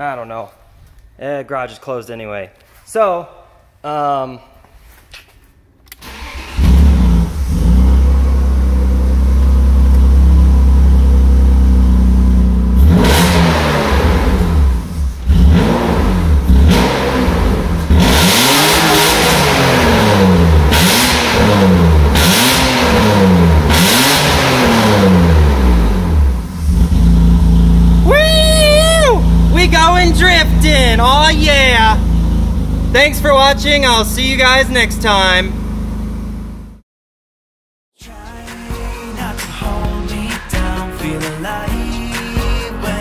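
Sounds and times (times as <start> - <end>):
car engine starting: 5.9 - 36.8, 38.3 - 43.0
car engine idling and revving: 6.0 - 36.8.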